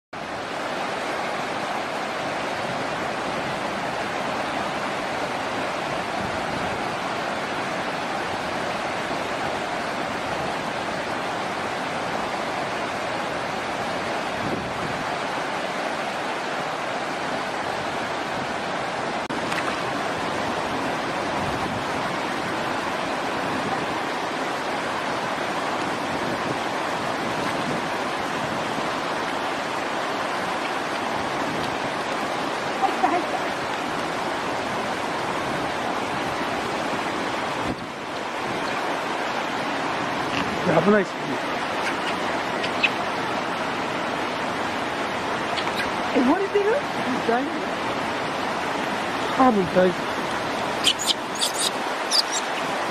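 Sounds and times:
flowing water rushing: 0.2s - 52.9s.

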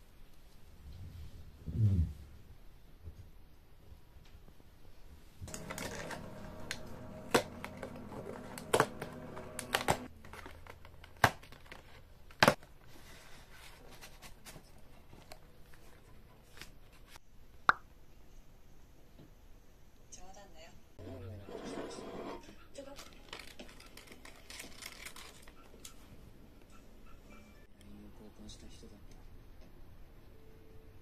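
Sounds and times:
low steady hum: 5.4s - 10.1s.

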